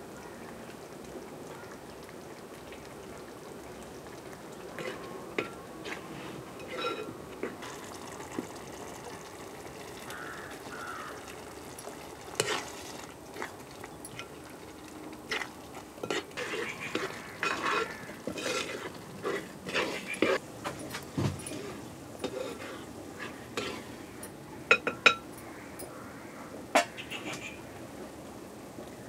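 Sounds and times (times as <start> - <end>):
metal spatula scraping metal pot: 4.8 - 6.0, 6.6 - 7.8, 12.4 - 12.8, 15.3 - 20.4, 21.4 - 23.9
food sizzling in a pot: 4.8 - 14.7, 15.3 - 20.4, 21.4 - 24.0.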